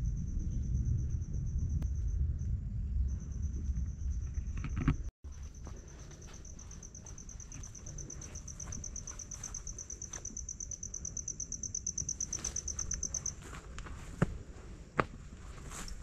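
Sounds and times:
insect trilling: 0:05.3 - 0:13.5.

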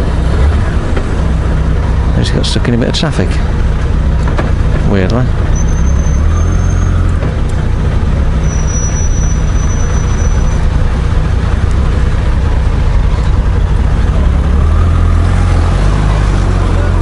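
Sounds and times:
motorcycle engine low rumble: 0:00.0 - 0:17.0
faint high whistle: 0:08.4 - 0:10.6.

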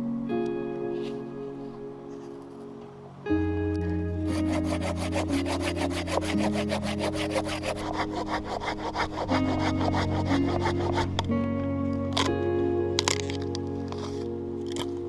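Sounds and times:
background music: 0:00.0 - 0:15.0
hand saw cutting log: 0:04.3 - 0:11.3.

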